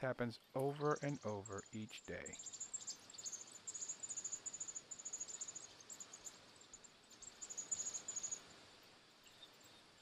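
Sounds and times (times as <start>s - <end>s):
nestlings chirping: 0.6s - 8.5s.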